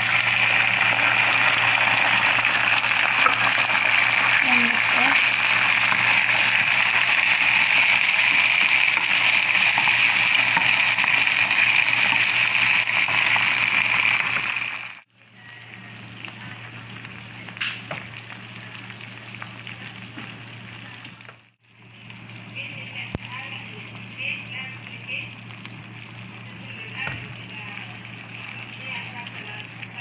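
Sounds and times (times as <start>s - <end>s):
beans sizzling in a pan: 0.0s - 15.1s.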